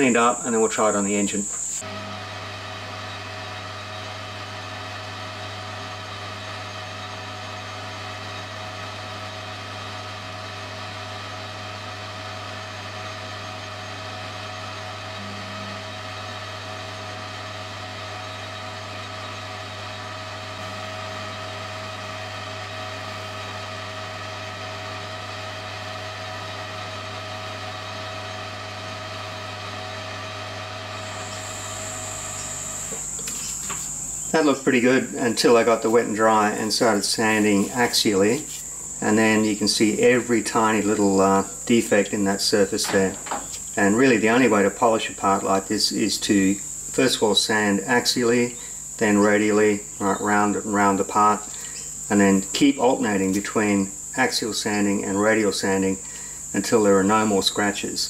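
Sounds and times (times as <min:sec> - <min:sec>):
metal lathe motor hum: 0:00.0 - 0:45.6.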